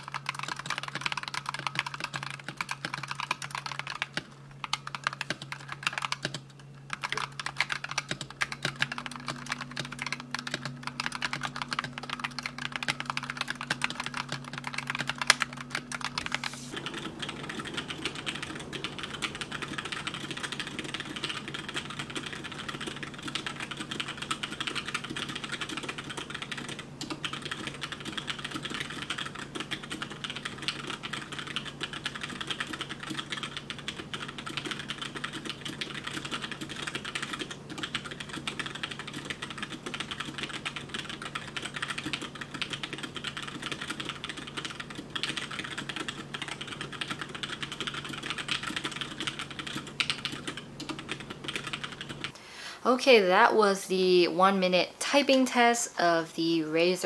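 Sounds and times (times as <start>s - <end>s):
mechanical keyboard typing: 0.0s - 52.4s
steady low hum: 0.0s - 57.0s.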